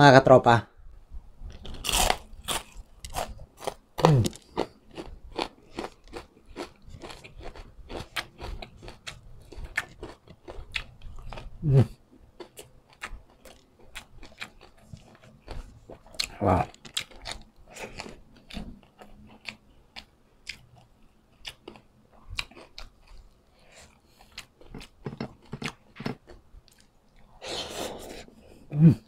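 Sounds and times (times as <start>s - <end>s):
person chewing crispy food: 1.5s - 11.7s, 12.4s - 28.0s
person humming: 4.0s - 4.4s, 11.6s - 11.9s, 28.7s - 29.0s.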